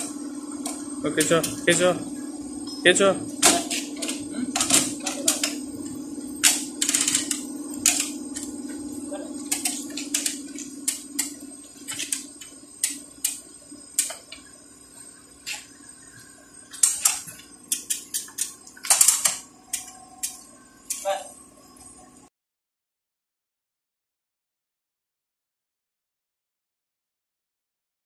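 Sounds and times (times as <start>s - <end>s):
steady low hum: 0.0s - 22.3s
chain hoist ratcheting clicks: 6.4s - 8.5s, 9.5s - 13.4s.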